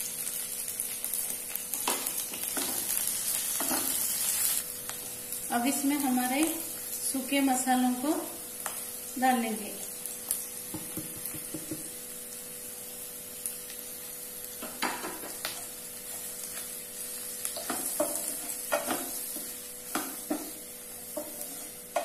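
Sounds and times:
vegetables sizzling in oil: 0.0 - 22.0
spatula scraping and knocking pan: 17.5 - 22.0.

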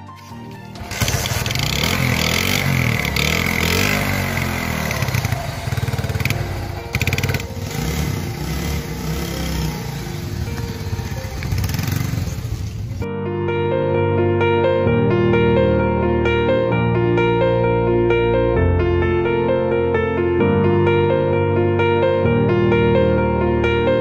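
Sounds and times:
motorcycle engine revving: 0.2 - 13.1.

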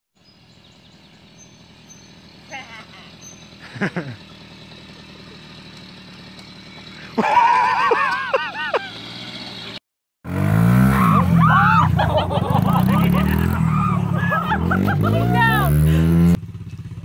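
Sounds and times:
small moped engine running: 0.2 - 17.0
louder engine starting: 3.1 - 16.4
onlookers crying out: 10.8 - 15.8.

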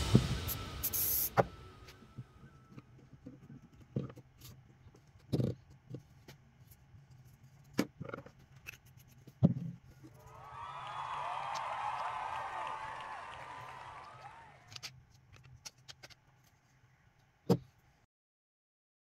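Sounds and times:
spray hiss: 0.0 - 1.9.

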